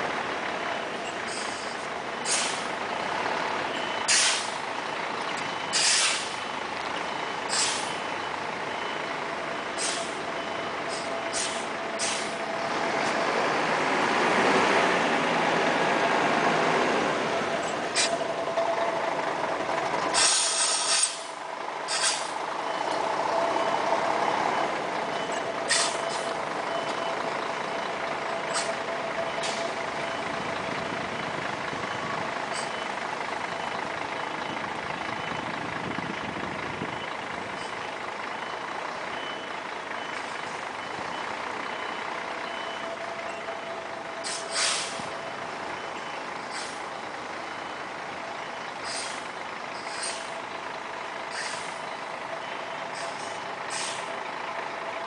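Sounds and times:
diesel bus engine running: 0.0s - 55.0s
air brake hisses: 2.2s - 2.7s, 4.1s - 4.5s, 5.7s - 6.4s, 7.5s - 7.9s, 9.8s - 10.2s, 10.9s - 12.4s, 18.0s - 18.2s, 20.1s - 22.4s, 25.7s - 26.2s, 28.5s - 28.7s, 44.2s - 45.1s, 46.5s - 46.8s, 48.8s - 49.2s, 49.8s - 50.3s, 51.3s - 51.8s, 52.9s - 54.1s
reverse alarm beeping: 5.4s - 12.6s, 22.6s - 34.4s, 38.4s - 46.3s.

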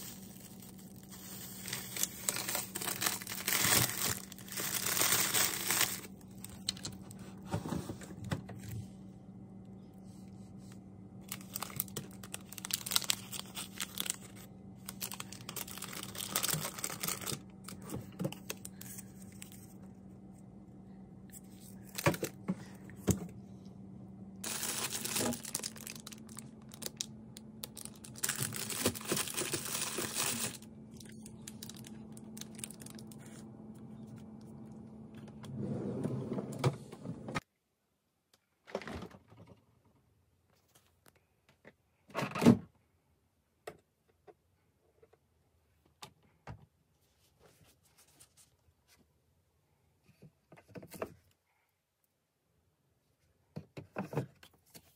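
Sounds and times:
plastic packaging crinkling: 0.0s - 7.2s, 11.2s - 19.9s, 21.4s - 22.4s, 24.4s - 33.5s
steady low hum: 0.0s - 37.4s.

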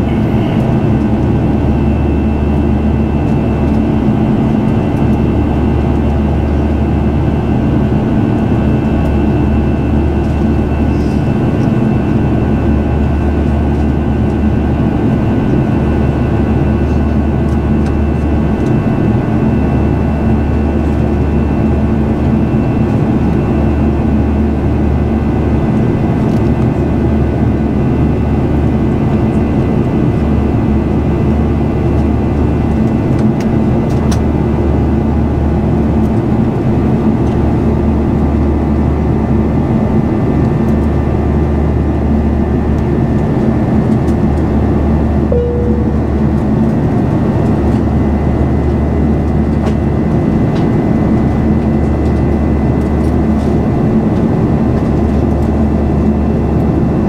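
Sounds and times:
faint steady whines: 0.0s - 57.0s
jet engine cabin rush: 0.0s - 57.0s
short faint tone: 45.3s - 46.4s.

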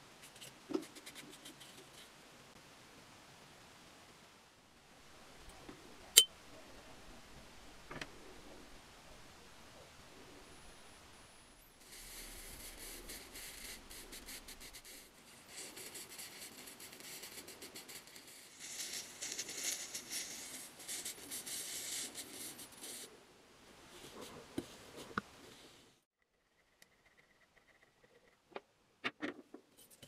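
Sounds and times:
crackling fizz of electrochemical etching: 14.8s - 22.9s.

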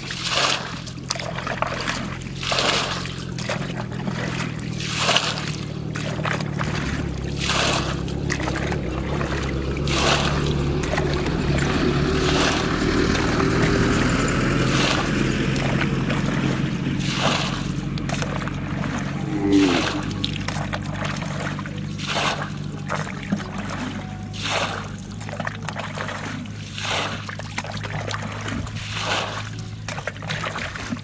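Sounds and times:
splashing in muddy water: 0.0s - 31.0s
steady engine hum: 0.0s - 31.0s.

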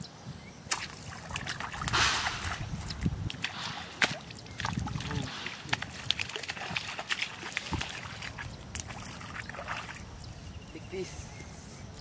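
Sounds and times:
light splashes: 0.7s - 10.1s.

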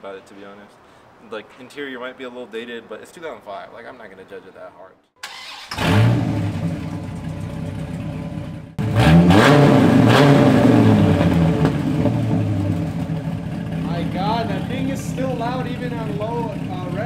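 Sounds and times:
car engine starting and idling: 5.2s - 17.0s
car engine revving: 5.3s - 17.0s.

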